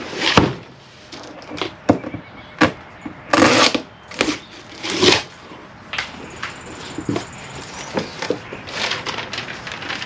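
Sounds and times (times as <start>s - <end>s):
cardboard box scraping: 3.3s - 5.4s.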